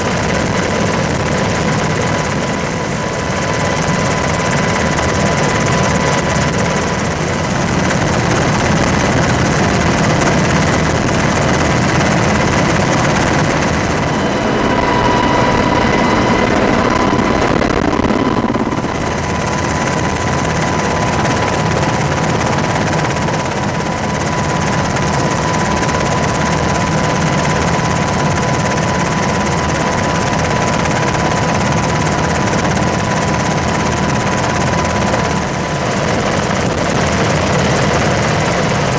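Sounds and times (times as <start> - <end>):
aircraft drone in flight: 0.0 - 38.9
high whine: 11.4 - 22.1.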